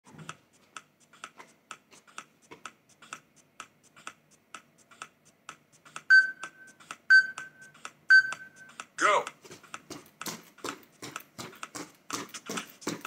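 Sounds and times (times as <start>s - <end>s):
timer ticking: 0.1s - 13.0s
loud high beeps: 6.1s - 8.7s.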